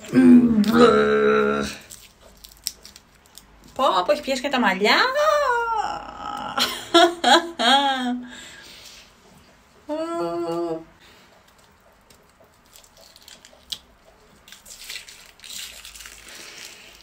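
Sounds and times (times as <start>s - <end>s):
person humming: 0.0s - 1.9s, 5.3s - 6.7s, 9.9s - 10.8s
mask peeling off skin crackling: 1.7s - 3.8s, 11.5s - 13.9s, 14.5s - 17.0s.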